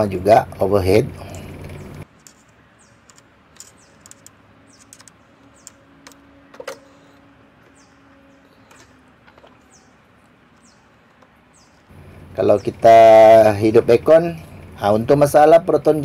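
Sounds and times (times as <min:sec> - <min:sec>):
bird chirps: 0:01.3 - 0:12.9
hands handling engine parts: 0:08.6 - 0:11.9.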